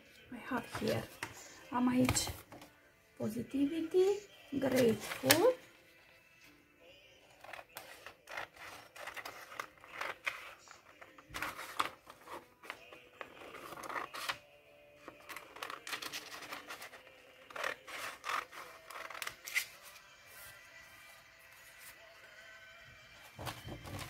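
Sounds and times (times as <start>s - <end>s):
soft background music: 0.0s - 24.0s
scissors snipping paper: 7.4s - 10.7s, 15.3s - 19.8s
paper crackling: 7.4s - 14.4s, 15.1s - 20.5s, 23.3s - 24.0s.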